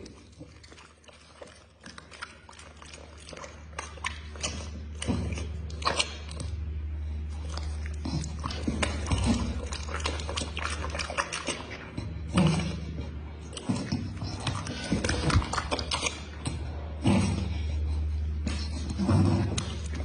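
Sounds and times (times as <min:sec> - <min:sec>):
dog licking lips: 0:00.0 - 0:20.0
steady low hum: 0:00.0 - 0:20.0
dog low vocal sound: 0:02.5 - 0:20.0.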